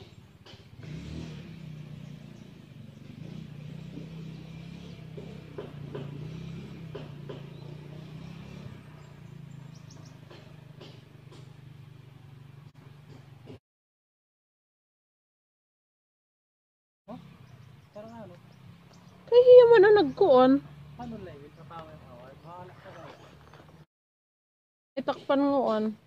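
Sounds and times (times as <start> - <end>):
small engine humming: 0.0 - 13.6.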